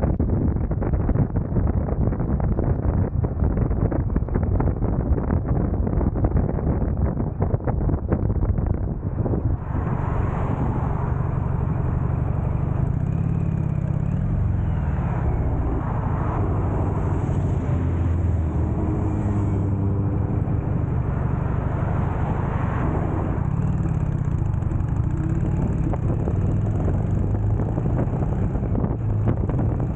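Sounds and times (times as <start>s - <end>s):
road traffic passing: 9.0s - 29.9s
motorcycle engine revving: 9.1s - 29.9s.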